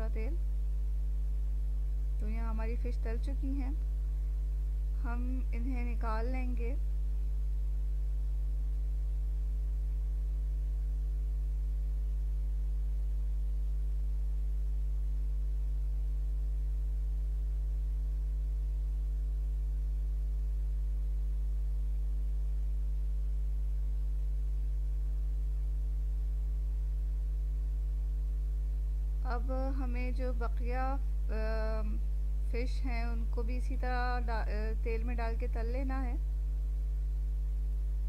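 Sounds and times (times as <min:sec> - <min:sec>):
electrical mains hum: 0:00.0 - 0:38.0.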